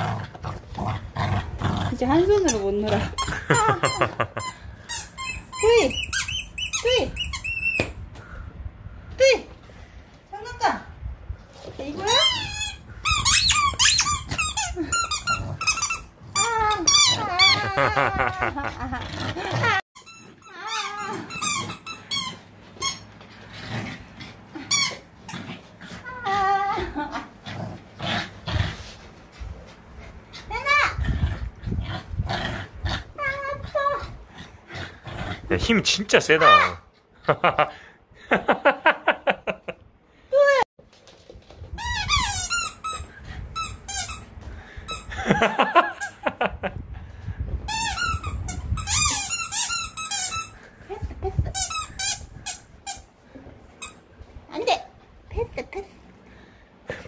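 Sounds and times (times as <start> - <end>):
squeaky rubber toy ball: 3.2 - 8.0, 12.2 - 17.7, 20.0 - 23.1, 41.8 - 44.3, 47.7 - 50.6.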